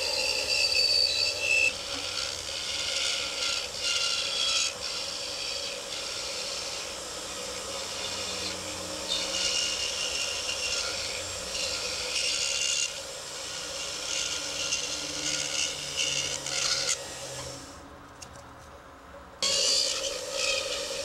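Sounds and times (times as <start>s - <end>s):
tool scraping on acrylic: 0.0s - 17.7s, 19.4s - 21.0s.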